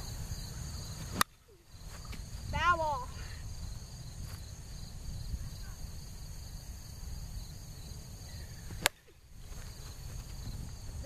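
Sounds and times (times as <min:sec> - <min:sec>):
crickets trilling: 0:00.0 - 0:11.0
wind rumbling on microphone: 0:00.0 - 0:11.0
plastic bat hitting ball: 0:01.1 - 0:01.4, 0:08.8 - 0:09.1.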